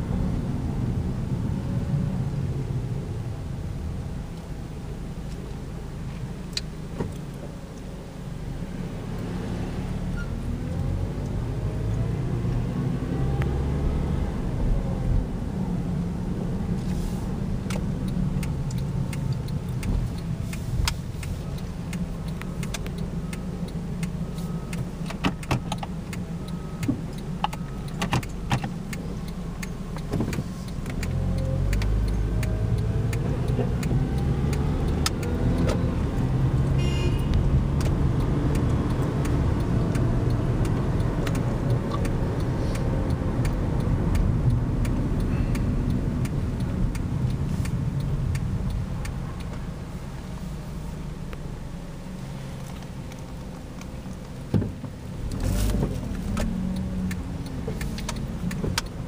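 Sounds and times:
car engine and road noise: 0.0s - 59.0s
sharp clicks: 16.8s - 50.1s, 52.6s - 59.0s.

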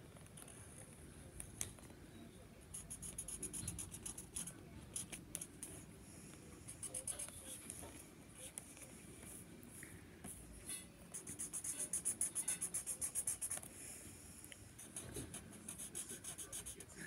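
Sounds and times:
marker scratching on paper: 2.7s - 5.9s, 6.6s - 7.7s, 11.1s - 13.7s, 14.8s - 17.0s.

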